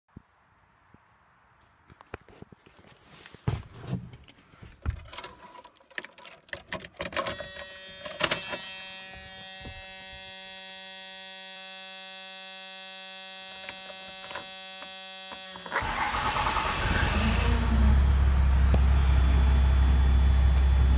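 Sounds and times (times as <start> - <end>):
steady electrical buzz: 7.4 - 15.7.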